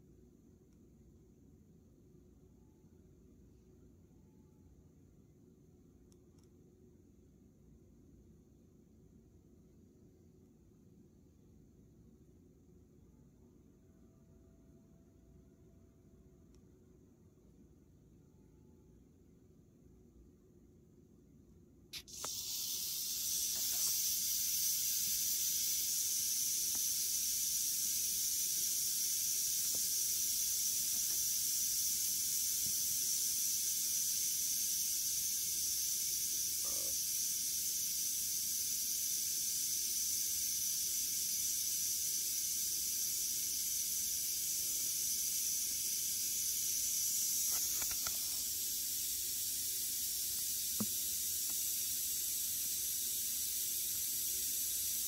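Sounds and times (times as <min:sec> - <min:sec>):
rattlesnake rattling: 0:22.0 - 0:55.0.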